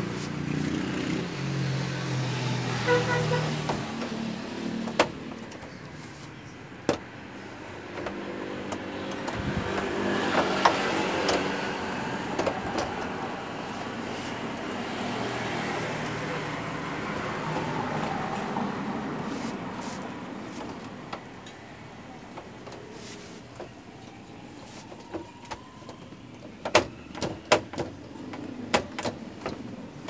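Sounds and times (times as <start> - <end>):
plastic latches clicking and snapping: 4.8 - 6.0, 7.8 - 11.6, 25.0 - 29.7.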